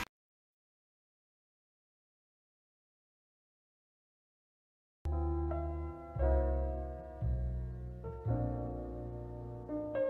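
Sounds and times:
slow piano music: 5.1s - 10.0s.

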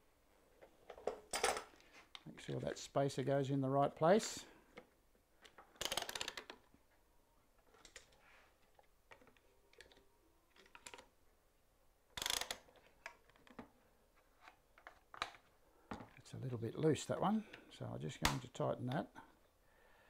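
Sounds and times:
ratcheting clamp clicks: 5.8s - 6.6s, 12.2s - 12.8s.

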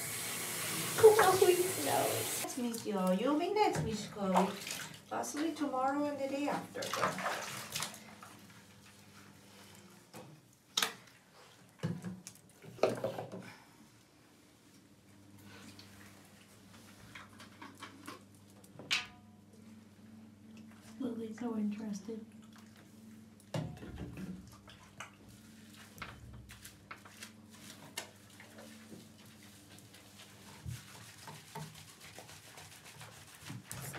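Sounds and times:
bathwater rushing: 0.0s - 3.0s, 3.9s - 5.7s, 6.6s - 8.2s.

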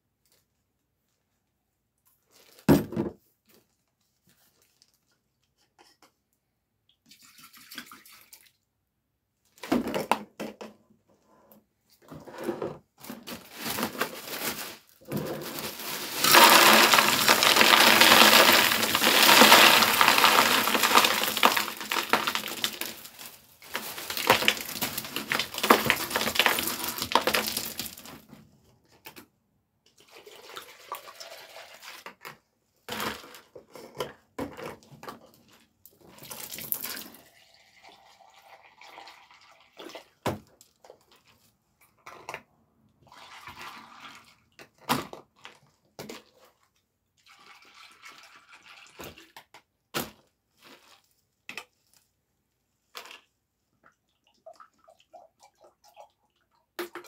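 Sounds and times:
ice cubes clattering: 13.5s - 28.2s
ice cubes clinking and knocking: 15.2s - 28.2s.

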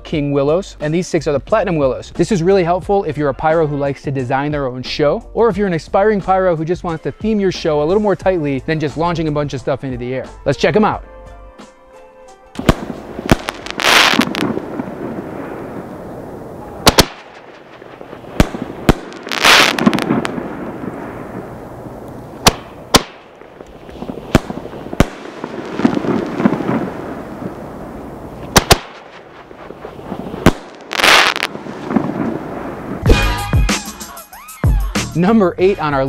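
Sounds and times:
firework shells banging: 12.6s - 33.2s
firework rushing bursts: 12.6s - 33.3s.

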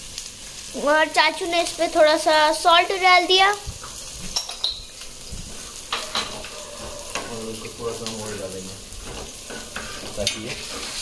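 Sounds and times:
fish sizzling in a pan: 0.0s - 11.0s
spatula scraping a pan: 5.4s - 7.8s, 8.9s - 11.0s.

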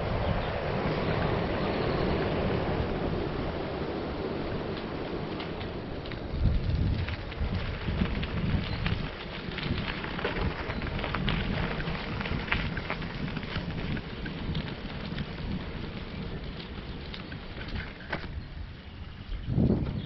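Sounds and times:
bicycle tyres on gravel: 0.0s - 20.0s.

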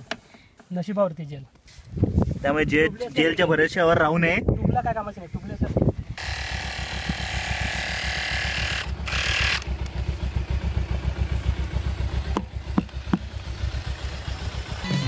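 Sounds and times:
electric tyre inflator rattling: 6.2s - 13.9s
sharp clicks: 8.8s - 10.0s.

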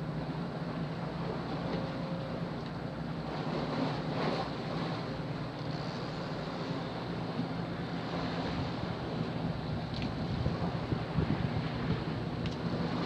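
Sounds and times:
low steady hum: 0.0s - 13.0s
water lapping at dock: 0.0s - 13.0s
wind buffeting microphone: 8.0s - 13.0s.

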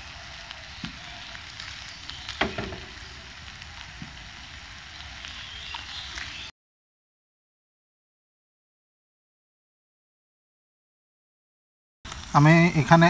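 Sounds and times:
liver sizzling in frying pan: 0.0s - 6.5s, 12.1s - 13.0s
spatula tapping pan: 2.4s - 3.1s.

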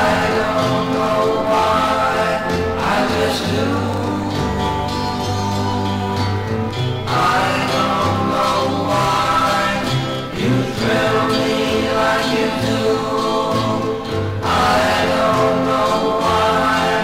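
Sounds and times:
bass line: 0.0s - 17.0s
male vocal group harmonizing: 0.0s - 17.0s.

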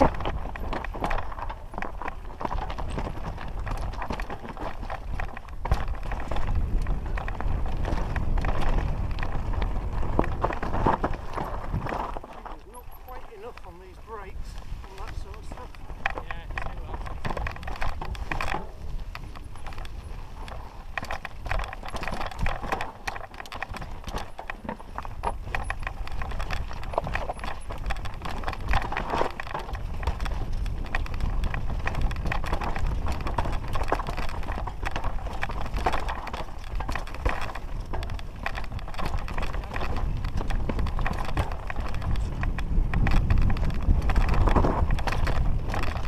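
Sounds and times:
bike rattling: 0.0s - 46.0s
tyres clattering over stones: 10.0s - 46.0s.

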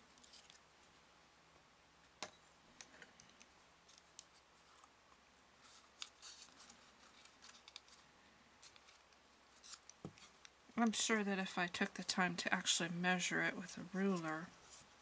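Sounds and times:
card handling: 5.7s - 8.0s.

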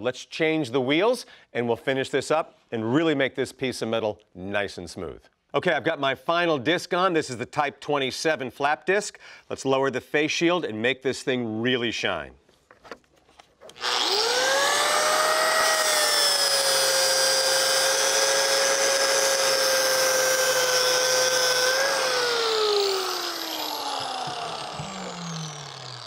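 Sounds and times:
angle grinder whining: 13.7s - 26.0s.

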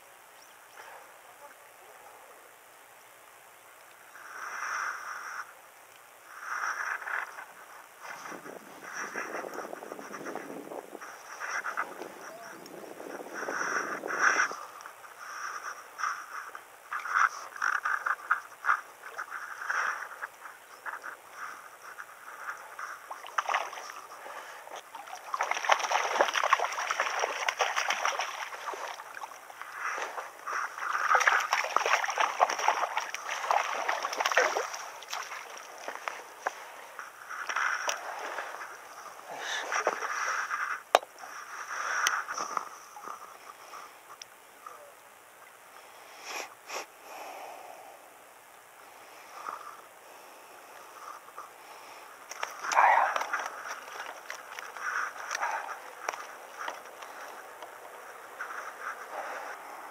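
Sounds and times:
fish splashing and thrashing: 15.3s - 40.9s, 52.3s - 59.0s.

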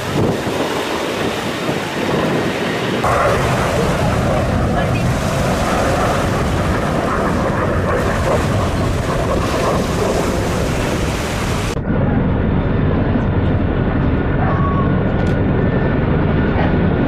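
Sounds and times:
churning spray: 0.0s - 11.8s
choppy sea water: 0.0s - 17.0s
dull rumble: 0.0s - 17.0s
wind buffeting microphone: 0.0s - 17.0s
boat engine running: 3.0s - 16.9s.

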